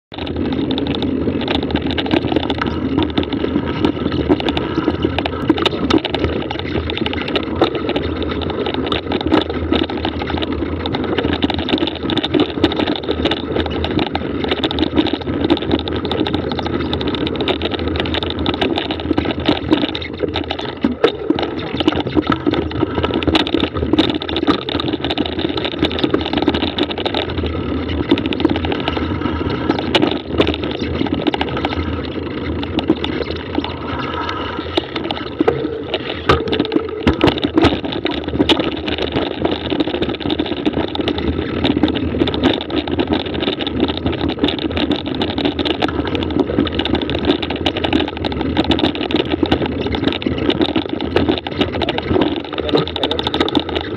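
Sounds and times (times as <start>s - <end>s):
bike rattles and knocks: 0.1s - 53.9s
tyre and wind rumble: 0.1s - 53.9s.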